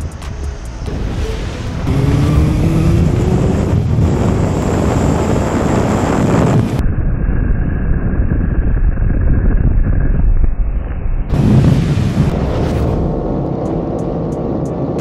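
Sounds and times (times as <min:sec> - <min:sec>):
motorcycle engine at speed: 0:00.0 - 0:11.3
wind noise on microphone: 0:00.0 - 0:15.0.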